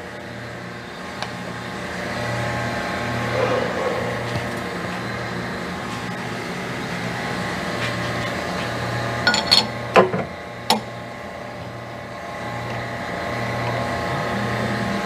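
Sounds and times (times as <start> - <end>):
low machine hum: 0.0 - 15.0
metal clinks and clanks of chuck: 9.3 - 9.8.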